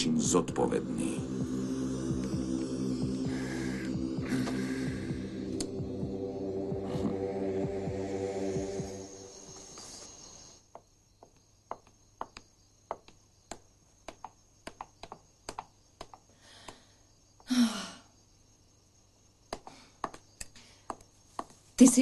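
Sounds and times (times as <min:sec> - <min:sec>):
hard-soled footsteps on floor: 0:20.9 - 0:21.6.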